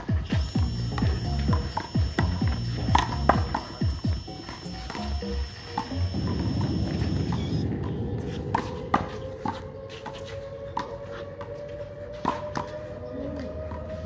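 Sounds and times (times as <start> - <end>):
handball slapping concrete: 0.0 - 7.4.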